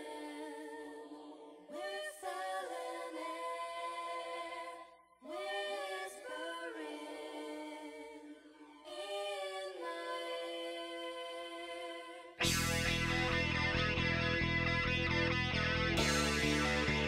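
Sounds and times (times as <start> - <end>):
a cappella choir singing chords: 0.0 - 12.7.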